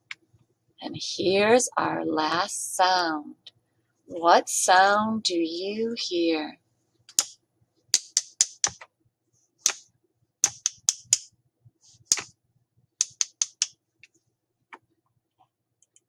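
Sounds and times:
wooden sticks tapped together: 8.0s - 8.9s, 9.6s - 11.3s, 12.1s - 12.3s, 13.0s - 13.8s.

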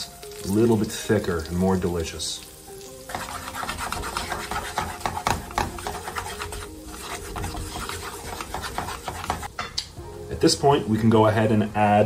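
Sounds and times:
oil sizzling: 0.0s - 12.0s
spatula scraping frying pan: 3.0s - 9.6s.

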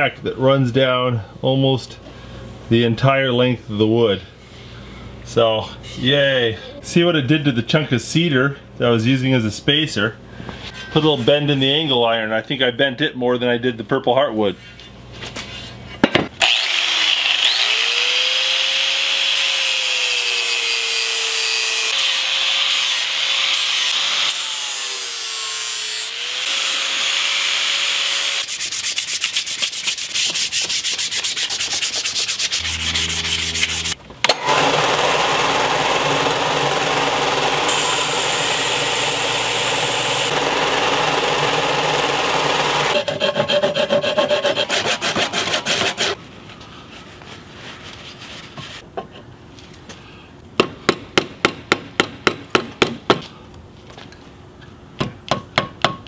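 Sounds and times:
angle grinder whine: 16.4s - 28.2s, 32.5s - 43.1s
sandpaper rubbing wood: 28.2s - 34.0s, 43.0s - 46.2s.

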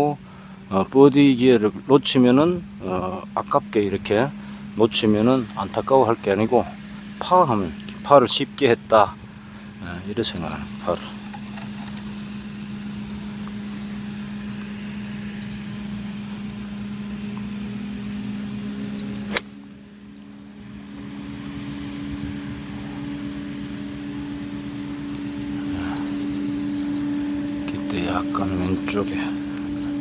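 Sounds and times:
steady machine hum: 0.0s - 30.0s
golf club striking ball: 18.9s - 19.6s.

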